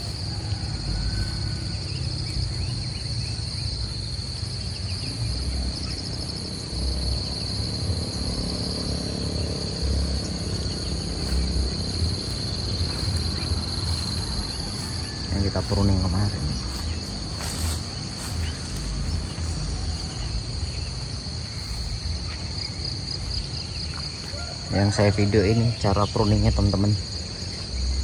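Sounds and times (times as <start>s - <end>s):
insects chorus: 0.0s - 28.0s
low uneven rumble: 5.2s - 24.4s.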